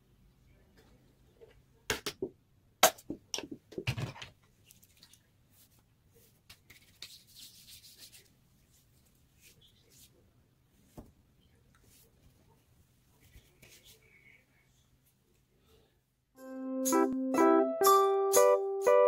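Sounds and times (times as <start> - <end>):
hands rubbing lotion: 6.5 - 8.3.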